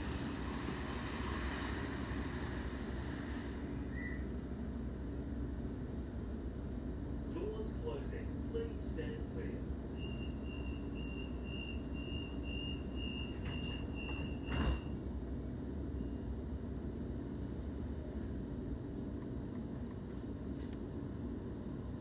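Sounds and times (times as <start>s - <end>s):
train low rumble: 0.0s - 22.0s
train doors shutting thud: 13.2s - 15.0s.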